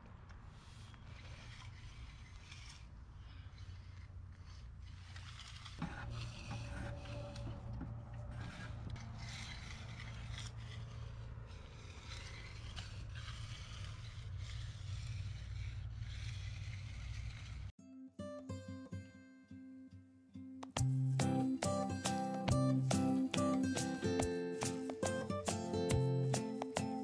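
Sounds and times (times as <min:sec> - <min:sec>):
broom dragged over concrete: 0:00.5 - 0:17.7
tools scraping across concrete: 0:00.5 - 0:17.7.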